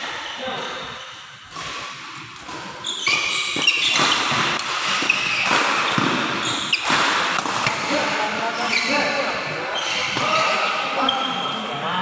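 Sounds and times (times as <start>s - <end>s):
shoes squeaking on court floor: 0.0s - 7.0s, 8.5s - 11.6s
rackets striking shuttlecock: 1.5s - 8.0s.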